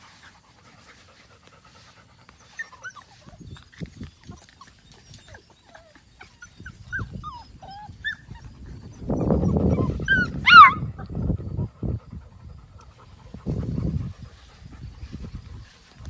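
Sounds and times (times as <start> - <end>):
puppies whimpering: 1.7 - 11.2
puppy yip: 9.7 - 10.8.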